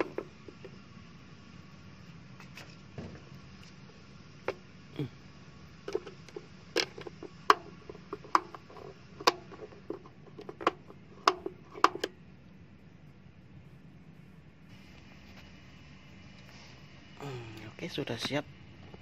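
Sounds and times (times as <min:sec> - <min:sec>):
sharp clicks and knocks: 0:05.9 - 0:12.2.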